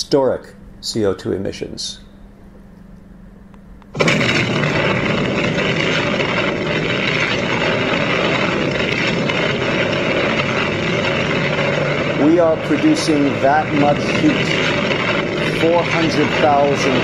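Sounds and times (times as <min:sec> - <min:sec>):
explosion roar: 0:03.9 - 0:17.0.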